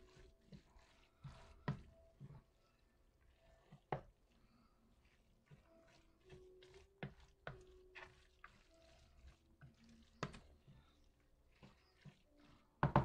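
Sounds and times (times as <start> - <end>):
spoon stirring wet filling: 0.0 - 13.0.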